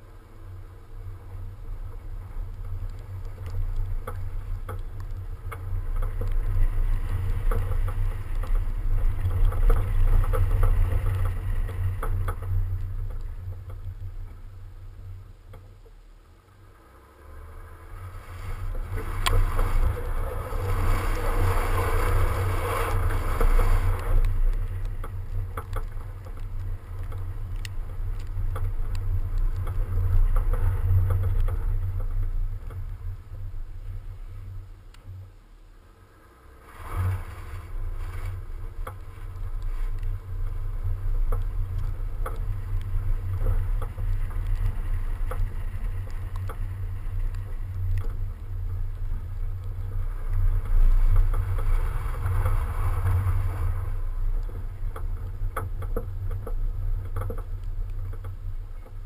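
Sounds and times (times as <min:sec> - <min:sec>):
tyre and road noise: 0:00.0 - 0:59.0
wind buffeting microphone: 0:18.0 - 0:34.8.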